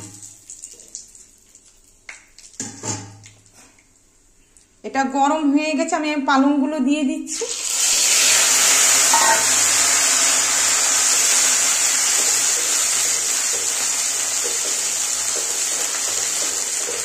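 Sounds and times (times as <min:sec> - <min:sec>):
food sizzling in hot oil: 0:07.3 - 0:17.0.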